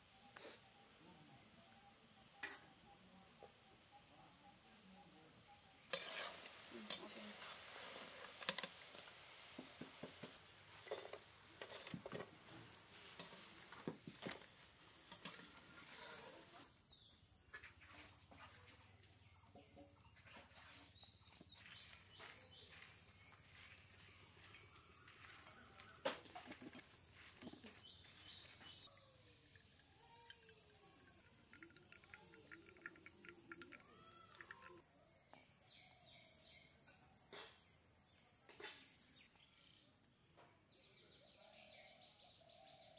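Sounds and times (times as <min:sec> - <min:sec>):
insects chirring: 0:00.0 - 0:40.5
fries sizzling in hot oil: 0:05.5 - 0:16.6.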